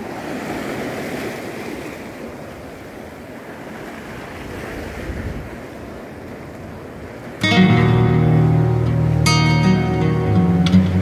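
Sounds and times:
small waves washing over rocks: 0:00.0 - 0:07.4
wind on microphone: 0:04.1 - 0:07.6.

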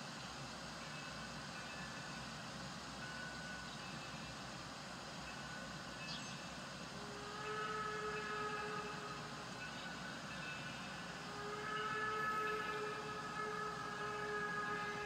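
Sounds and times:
distant train rumbling: 0:00.0 - 0:15.0
train horn chord: 0:06.9 - 0:15.0.

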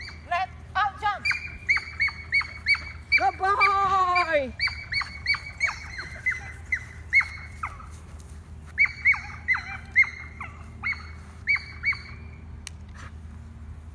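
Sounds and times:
high-pitched animal calls: 0:00.0 - 0:00.3, 0:01.2 - 0:08.0, 0:08.8 - 0:12.4.

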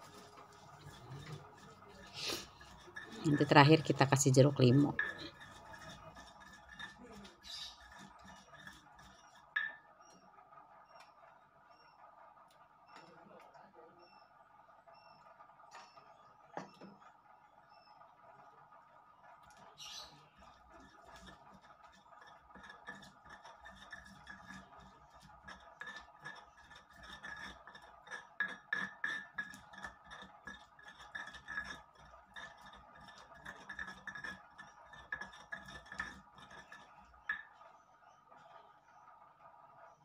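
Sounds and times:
stone pestle grinding in mortar: 0:00.0 - 0:09.8, 0:19.8 - 0:37.6.

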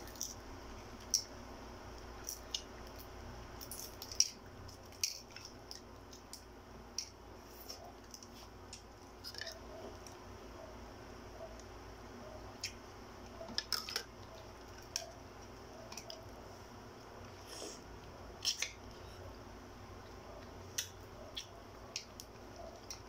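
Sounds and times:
eggshell cracking and clicking: 0:02.2 - 0:07.2.

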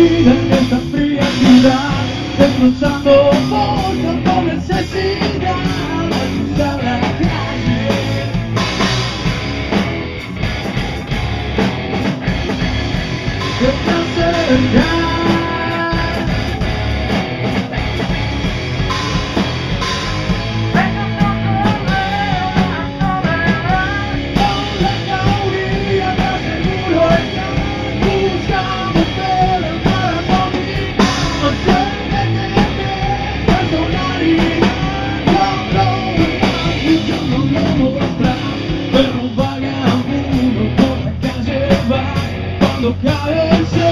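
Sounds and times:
lead guitar with bending notes: 0:00.0 - 0:41.2
rock band playing: 0:00.0 - 0:43.9.

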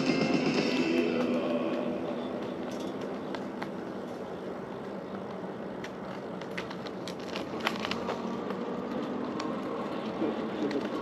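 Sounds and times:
bicycle tyre and wind noise: 0:01.3 - 0:11.0
clicks and crackles: 0:05.1 - 0:11.0.

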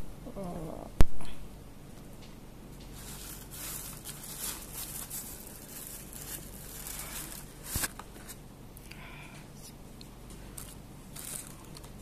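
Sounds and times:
plastic bag crinkling: 0:03.0 - 0:08.2, 0:10.5 - 0:12.0.

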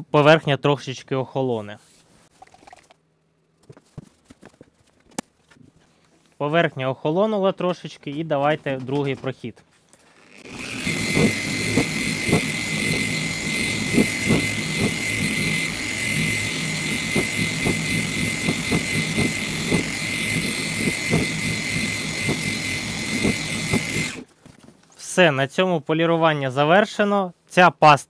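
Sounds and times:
machine polisher whining: 0:10.1 - 0:24.3.

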